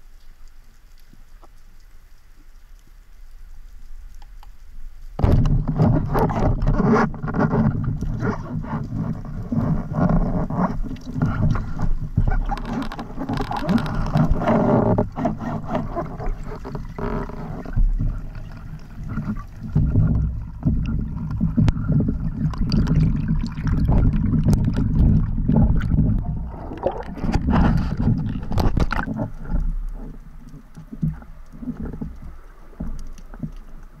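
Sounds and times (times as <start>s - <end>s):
knocks and rattles underwater: 4.2s - 34.0s
underwater water rushing: 5.1s - 34.0s.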